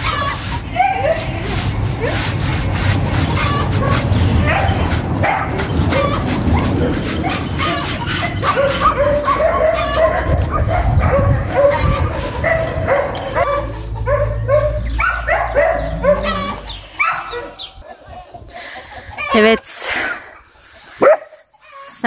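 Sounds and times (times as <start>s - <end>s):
dog barking: 4.4s - 6.1s, 6.8s - 17.6s, 21.0s - 21.4s.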